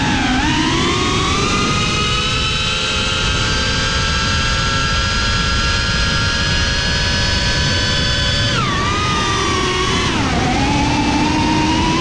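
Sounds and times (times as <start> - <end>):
drone motors high-pitched whine: 0.0 - 12.0.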